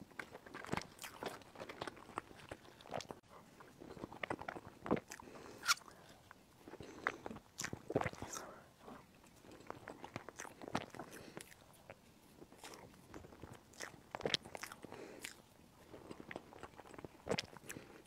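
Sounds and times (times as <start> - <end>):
chewing lip smacks: 3.9 - 8.6, 9.2 - 18.0.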